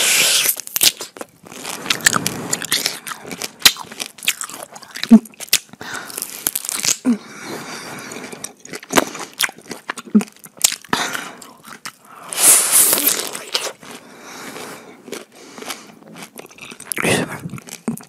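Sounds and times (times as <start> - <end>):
crunching bites of pineapple: 0.2 - 7.1.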